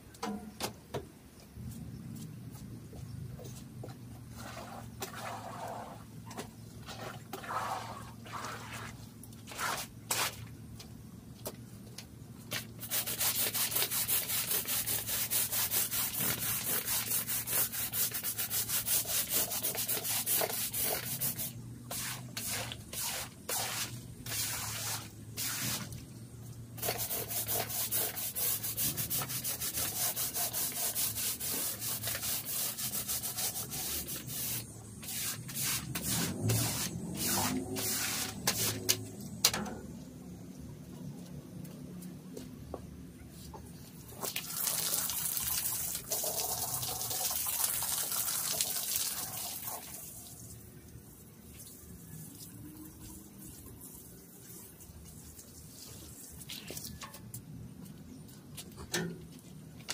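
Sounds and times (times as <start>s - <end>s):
scrubbing on a rug: 4.3s - 6.0s, 6.8s - 10.5s.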